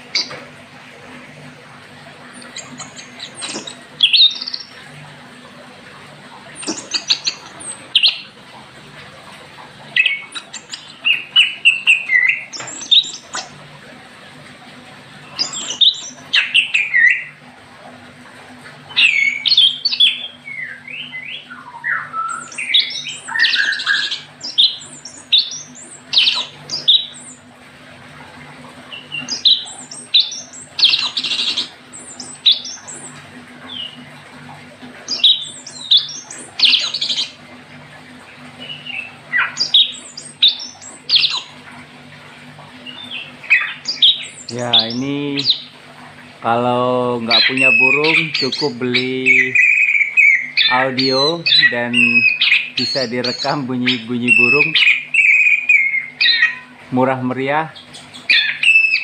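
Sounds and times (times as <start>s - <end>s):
recorded songbird calls: 0.0s - 0.4s, 2.4s - 4.8s, 6.5s - 8.4s, 10.0s - 13.6s, 15.2s - 17.4s, 18.9s - 27.4s, 28.9s - 34.0s, 35.0s - 37.4s, 38.6s - 41.6s, 42.8s - 45.7s, 46.8s - 59.0s.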